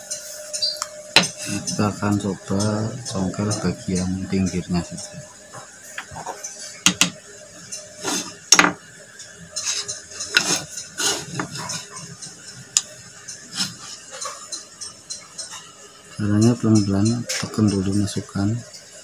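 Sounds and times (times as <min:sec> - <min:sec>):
wood and steel knocks and taps: 0:06.9 - 0:07.2.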